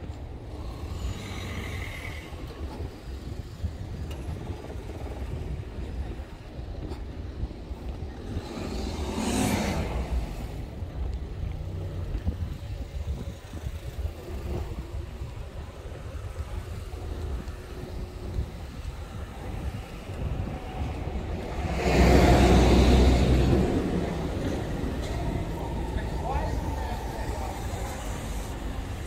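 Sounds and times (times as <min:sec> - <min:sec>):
cars creeping past: 0:00.0 - 0:29.0
wind rumble on microphone: 0:00.0 - 0:29.0.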